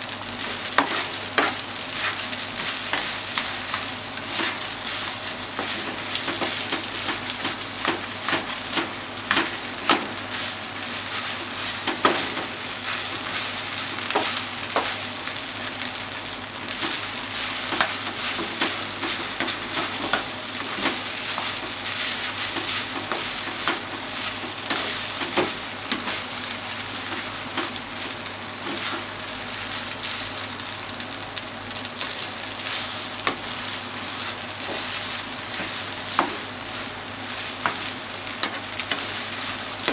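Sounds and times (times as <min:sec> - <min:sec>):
rice sizzling in a frying pan: 0:00.0 - 0:39.9
spatula scraping and tapping pan: 0:00.6 - 0:15.0, 0:16.8 - 0:26.2, 0:34.2 - 0:36.6.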